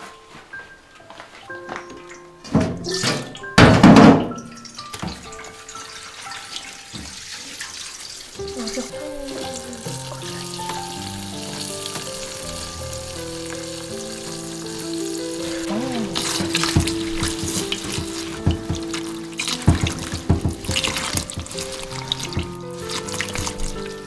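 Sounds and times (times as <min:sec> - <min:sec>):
background music with sustained notes: 0:00.0 - 0:24.0
bowl knocking in sink: 0:02.5 - 0:04.4, 0:15.7 - 0:23.8
tap water running into metal bowl: 0:04.4 - 0:15.4, 0:16.2 - 0:24.0.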